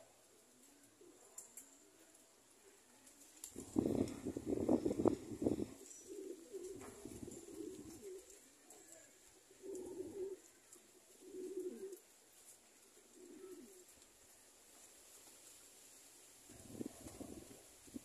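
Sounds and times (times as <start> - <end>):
pigeons cooing: 3.5 - 14.0, 16.5 - 18.0.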